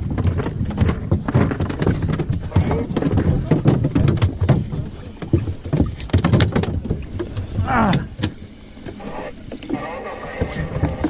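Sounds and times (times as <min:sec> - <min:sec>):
fishing gear knocking on boat deck: 0:00.0 - 0:07.0.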